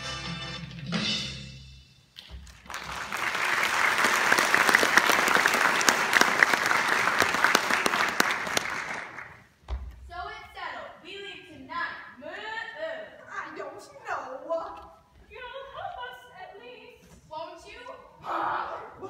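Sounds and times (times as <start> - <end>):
audience clapping: 2.2 - 9.6.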